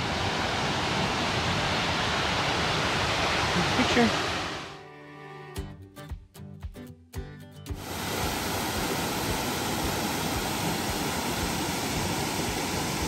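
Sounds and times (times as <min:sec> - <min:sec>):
small waterfall rushing over rocks: 0:00.0 - 0:04.7, 0:07.8 - 0:13.0
music: 0:04.7 - 0:07.9.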